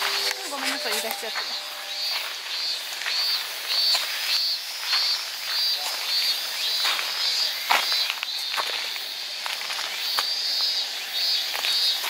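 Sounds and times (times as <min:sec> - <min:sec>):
footsteps on leafy dirt path: 0:00.0 - 0:12.0.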